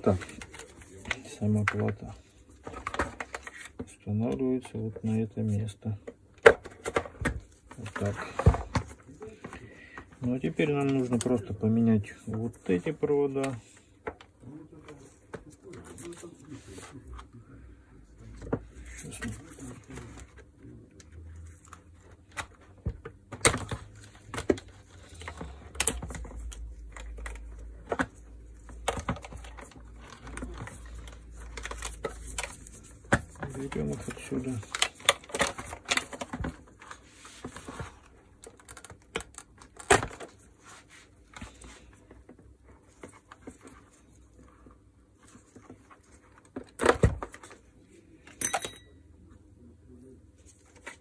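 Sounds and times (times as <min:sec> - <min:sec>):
clicks and rustling of wires: 0:18.4 - 0:40.4.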